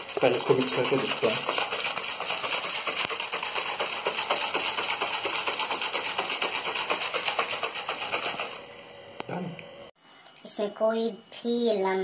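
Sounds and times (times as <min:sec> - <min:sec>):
liquid sloshing in shaker bottle: 0:00.0 - 0:08.6.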